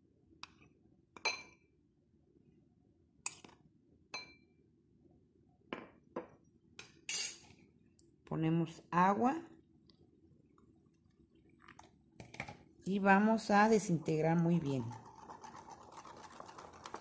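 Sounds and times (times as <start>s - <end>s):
flour pouring: 14.4s - 17.0s.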